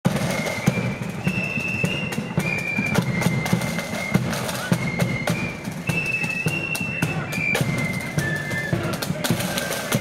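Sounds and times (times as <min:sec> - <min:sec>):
flutes playing melody: 0:00.1 - 0:10.0
snare drums: 0:00.1 - 0:10.0.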